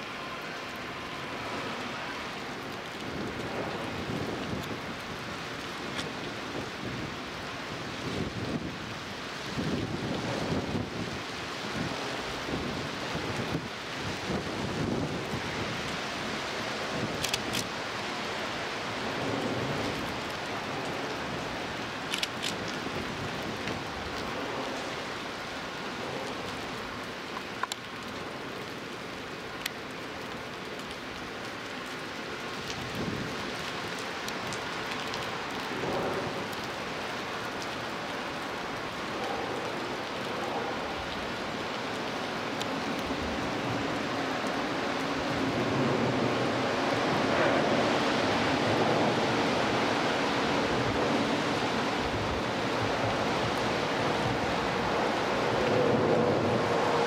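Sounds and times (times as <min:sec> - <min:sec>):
light rain hiss: 0:00.0 - 0:57.0
faint ticks: 0:27.3 - 0:28.1.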